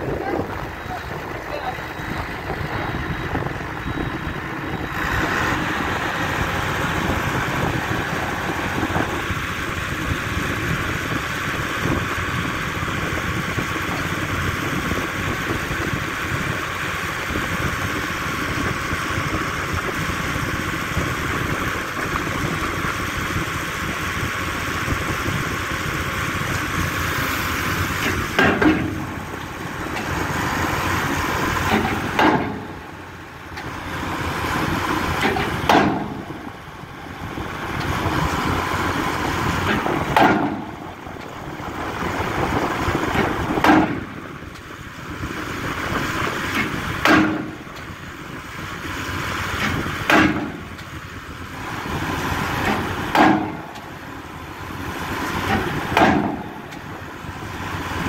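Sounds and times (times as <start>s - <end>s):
steady mechanical noise: 0.0s - 58.0s
pile hammer blows: 55.4s - 56.5s.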